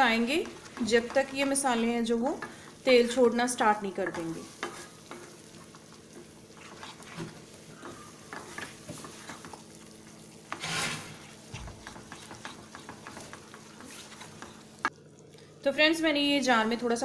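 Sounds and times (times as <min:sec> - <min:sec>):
paste sizzling in oil: 0:00.0 - 0:15.1
spatula scraping paste in pan: 0:04.1 - 0:09.6, 0:10.4 - 0:14.9.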